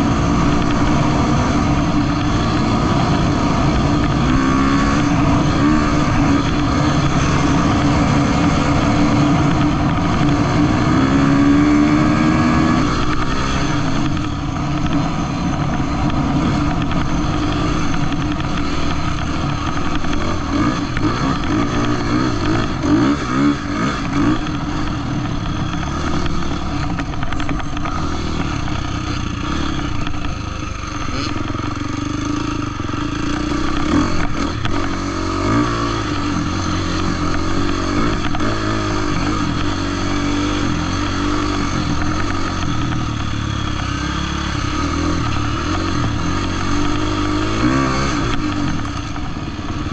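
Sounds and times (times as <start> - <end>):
dirt bike engine revving: 0.0 - 49.9.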